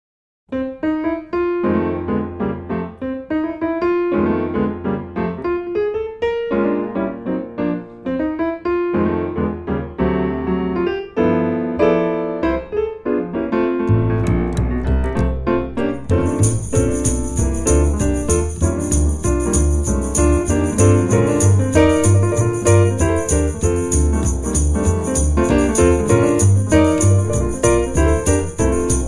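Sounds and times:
piano music: 0.5s - 29.0s
bass line: 13.9s - 29.0s
drums and percussion: 16.0s - 29.0s.

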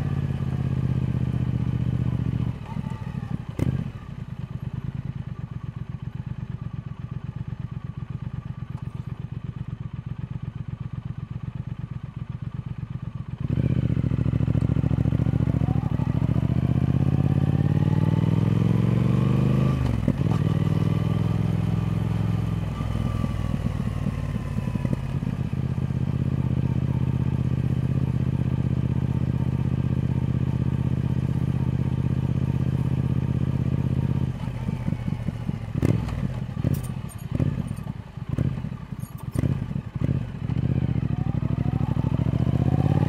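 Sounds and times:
motorcycle engine revving: 0.0s - 4.2s, 13.3s - 43.0s.

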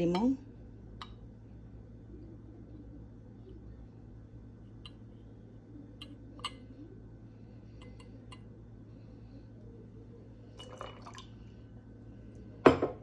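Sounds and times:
juice pouring: 10.5s - 11.6s
liquid poured over ice: 10.6s - 11.3s.

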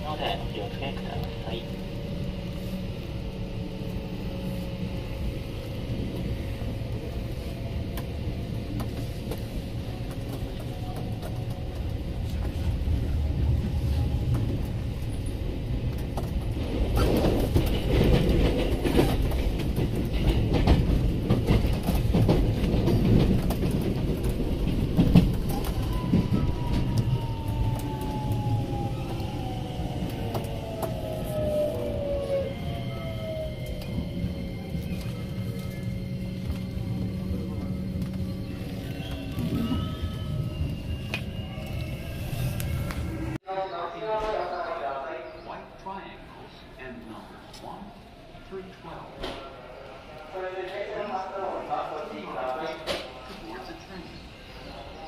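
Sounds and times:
train wheels rumbling on rails: 0.0s - 43.4s.

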